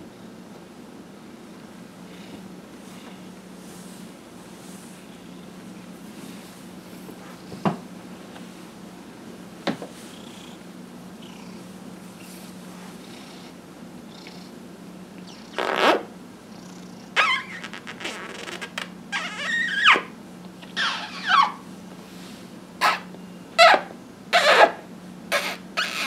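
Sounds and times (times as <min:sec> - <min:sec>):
cat purring: 0:10.0 - 0:10.6, 0:11.2 - 0:14.6.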